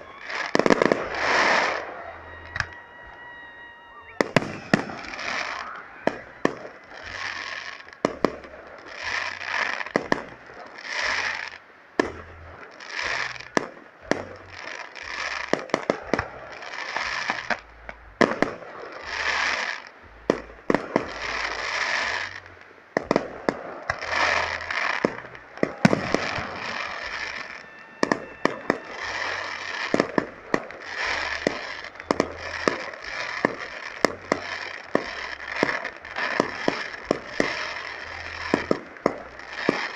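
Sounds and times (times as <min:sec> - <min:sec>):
fireworks bangs and crackling: 0:00.0 - 0:39.9
fireworks hissing: 0:00.0 - 0:39.9.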